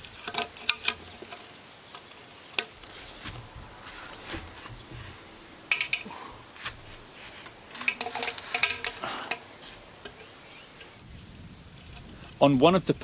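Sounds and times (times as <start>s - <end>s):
metal chain clinking and rattling: 7.7s - 9.4s.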